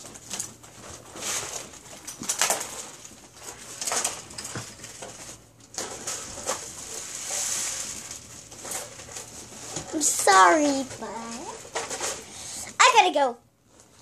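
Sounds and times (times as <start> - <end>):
clothing swishing and rustling: 5.2 - 12.2.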